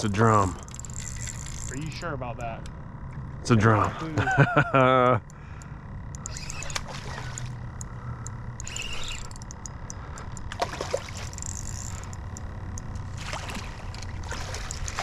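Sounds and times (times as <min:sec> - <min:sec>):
faint ticking: 0:05.1 - 0:10.6, 0:11.3 - 0:13.1
fish splashing at water surface: 0:10.5 - 0:11.6, 0:13.2 - 0:15.0.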